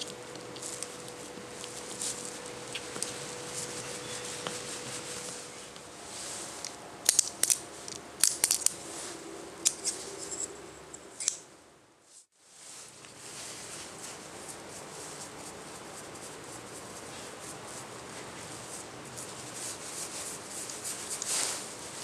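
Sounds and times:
paintbrush scratching on wood: 0:00.0 - 0:05.6.

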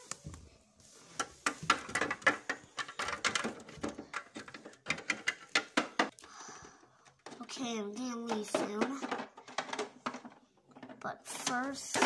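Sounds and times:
plastic toy pieces clicking: 0:01.9 - 0:06.1.

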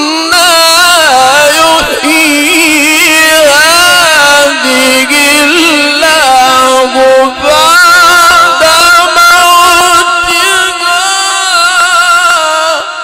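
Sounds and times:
man chanting melodically: 0:00.0 - 0:13.0.

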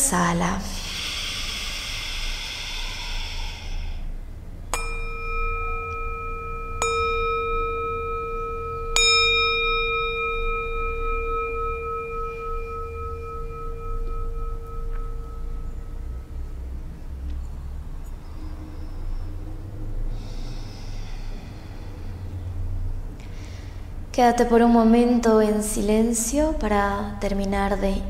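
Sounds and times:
long breath out: 0:00.7 - 0:04.3, 0:18.3 - 0:24.0
metal singing bowl ringing: 0:04.7 - 0:17.3.

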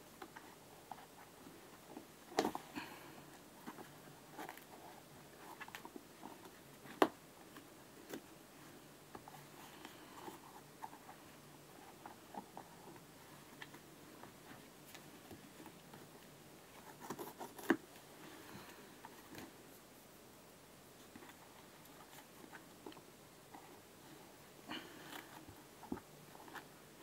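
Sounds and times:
synthetic material rustling and crackling: 0:00.0 - 0:20.3.

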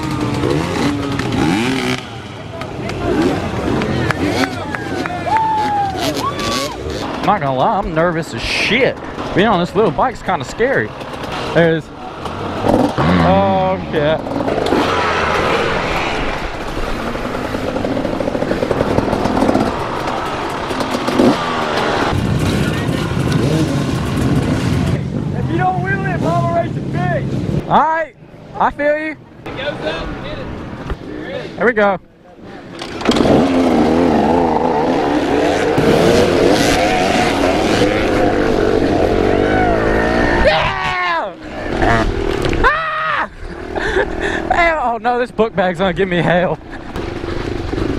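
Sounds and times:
small dirt bike engine running: 0:00.0 - 0:07.4, 0:10.7 - 0:25.0, 0:32.8 - 0:40.7
other dirt bikes running: 0:00.0 - 0:47.9.

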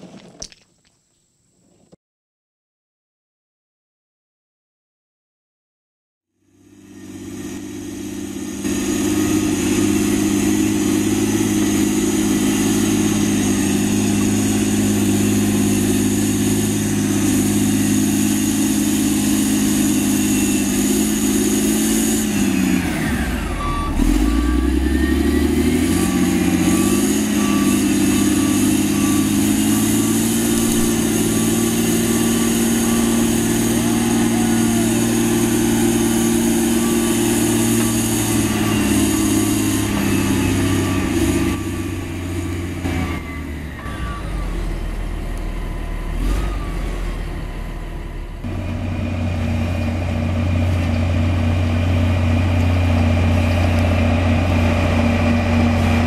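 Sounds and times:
compactor diesel engine running: 0:06.5 - 0:56.0
repeating single-pitch beep: 0:23.6 - 0:29.5.

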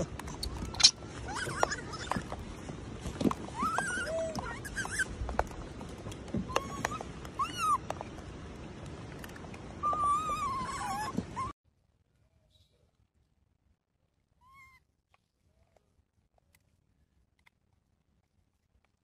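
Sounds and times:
baby monkey squealing: 0:00.4 - 0:02.2, 0:03.6 - 0:05.1, 0:06.5 - 0:07.8, 0:09.8 - 0:11.5.

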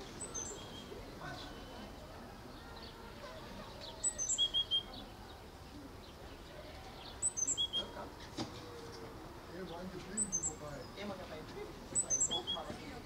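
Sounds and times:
small songbird chirping: 0:00.0 - 0:03.1, 0:03.7 - 0:08.1, 0:09.6 - 0:11.3, 0:11.9 - 0:12.8.

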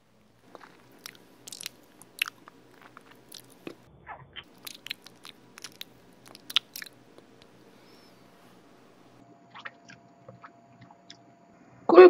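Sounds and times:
wet squelch: 0:00.4 - 0:08.1
person chewing: 0:00.4 - 0:08.2.

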